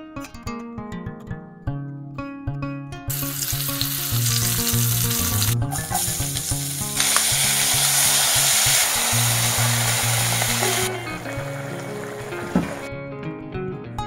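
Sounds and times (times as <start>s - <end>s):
hot oil sizzling: 3.1s - 12.9s.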